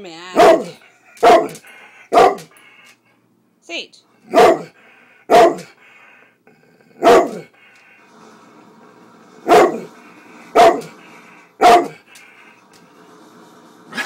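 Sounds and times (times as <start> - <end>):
dog barking: 0.4 - 2.6, 4.3 - 5.8, 7.0 - 7.5, 9.4 - 9.9, 10.5 - 10.9, 11.6 - 12.0.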